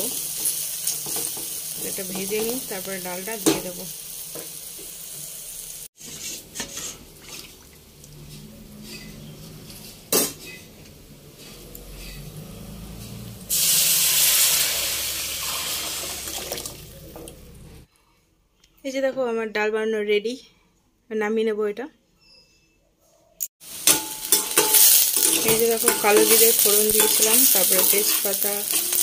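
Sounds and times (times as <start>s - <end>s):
low frying sizzle: 0.0s - 17.9s, 23.6s - 29.0s
loud hiss of food in hot oil: 13.5s - 16.2s
metal spoon clinking against pan: 23.9s - 29.0s.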